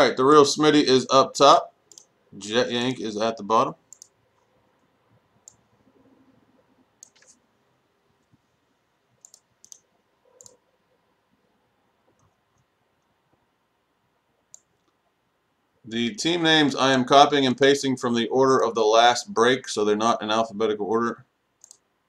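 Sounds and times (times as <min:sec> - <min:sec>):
computer mouse clicks: 0:01.9 - 0:02.1, 0:03.9 - 0:05.8, 0:07.0 - 0:07.4, 0:09.1 - 0:10.6, 0:12.1 - 0:13.1, 0:14.5 - 0:15.1, 0:21.6 - 0:21.9.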